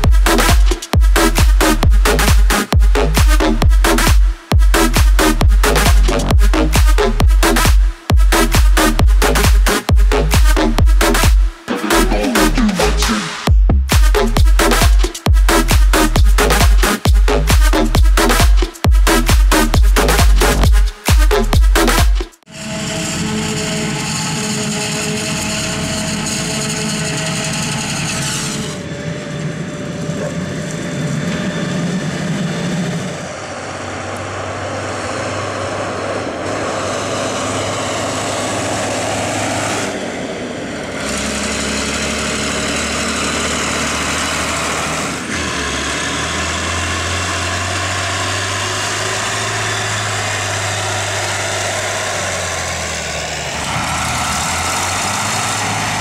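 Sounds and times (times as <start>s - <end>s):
diesel tractor engines: 0.0s - 56.0s
forage harvester running: 22.5s - 56.0s
tractor engine under load: 22.6s - 30.4s, 33.2s - 56.0s.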